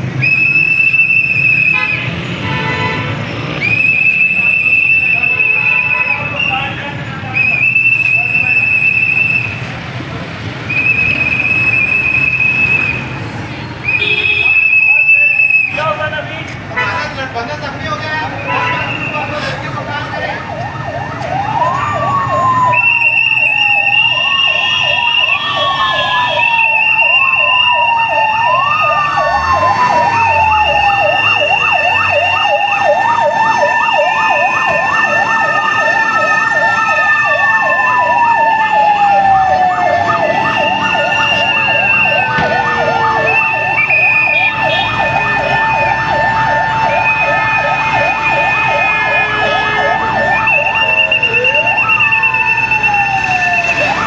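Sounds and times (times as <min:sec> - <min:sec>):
wailing siren: 0:00.0 - 0:02.2, 0:03.5 - 0:09.8, 0:10.5 - 0:13.2, 0:13.8 - 0:16.0, 0:19.0 - 0:54.0
fast warbling siren: 0:20.3 - 0:54.0
steady high siren tone: 0:20.3 - 0:54.0.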